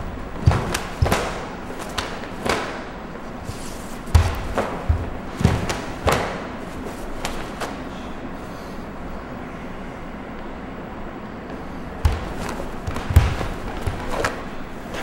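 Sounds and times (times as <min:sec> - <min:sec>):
bare feet stamping on wooden floor: 0:00.0 - 0:02.8, 0:04.0 - 0:06.4, 0:12.0 - 0:14.4
cloth snapping: 0:00.5 - 0:02.8, 0:07.2 - 0:07.7.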